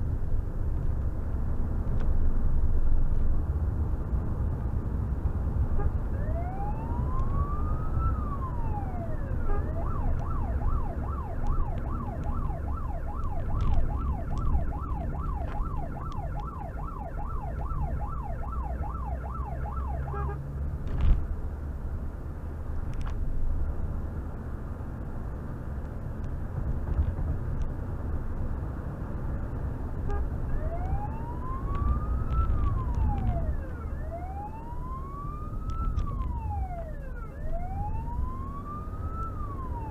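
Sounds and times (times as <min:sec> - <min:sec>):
engine and tyre noise: 0:00.0 - 0:39.9
police siren wailing and yelping: 0:06.2 - 0:20.3, 0:30.5 - 0:39.9.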